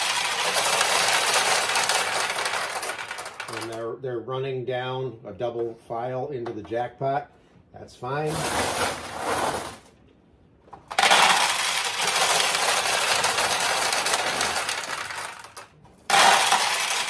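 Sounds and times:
pachinko balls clattering: 0.0s - 3.8s, 10.9s - 17.0s.

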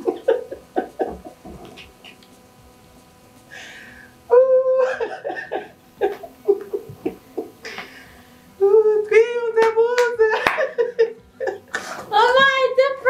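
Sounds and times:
high-pitched voice laughing: 4.3s - 6.8s.

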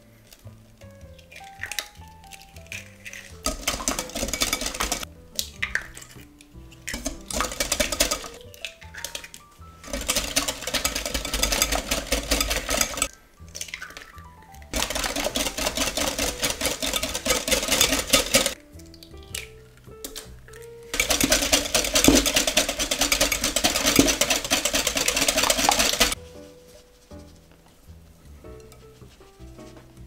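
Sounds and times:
soft background music: 0.0s - 30.0s
whisk clattering against glass bowl: 3.3s - 5.1s, 6.9s - 13.1s, 14.8s - 18.6s, 21.0s - 26.2s.

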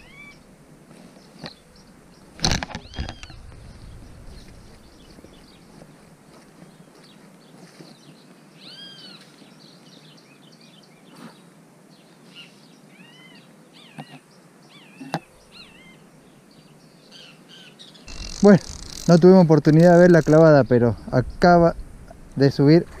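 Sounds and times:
bird calling: 0.0s - 0.4s, 8.6s - 9.4s, 12.3s - 16.2s, 17.1s - 21.4s.

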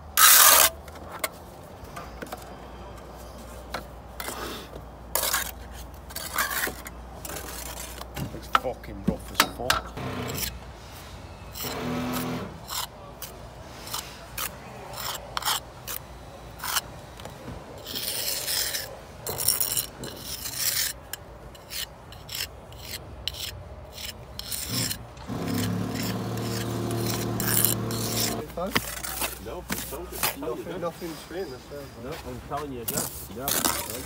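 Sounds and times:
brick jointer scraping mortar: 10.0s - 10.6s, 11.6s - 12.9s, 21.6s - 29.9s.

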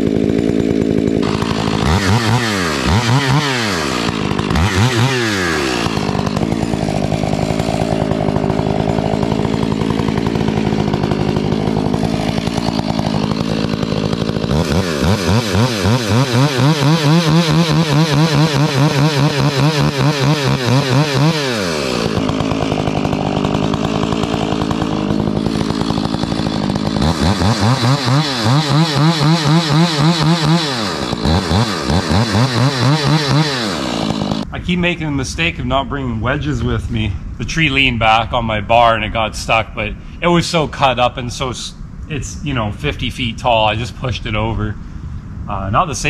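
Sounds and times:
chainsaw cutting log: 0.0s - 34.6s.

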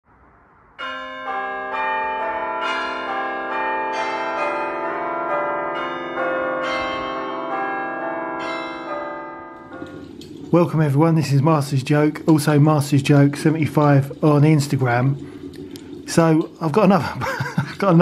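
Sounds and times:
peal of tuned bells: 0.8s - 18.0s.

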